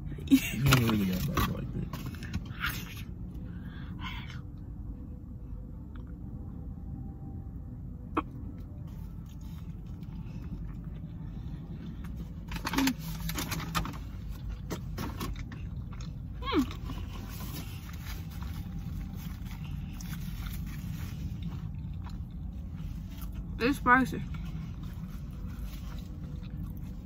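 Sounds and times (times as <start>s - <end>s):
low rumble inside car: 0.0s - 27.0s.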